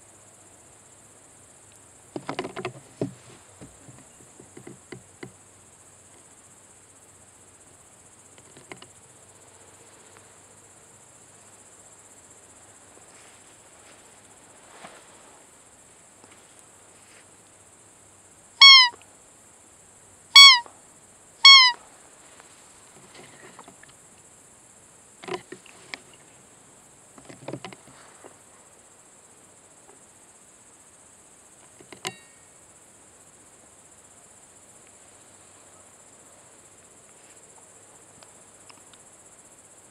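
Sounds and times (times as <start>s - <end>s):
insects buzzing: 0.0s - 39.9s
soft knocks and rustles: 2.2s - 5.3s, 27.2s - 28.4s
high-pitched deer call squeaks: 18.6s - 19.0s, 20.4s - 20.7s, 21.4s - 21.8s.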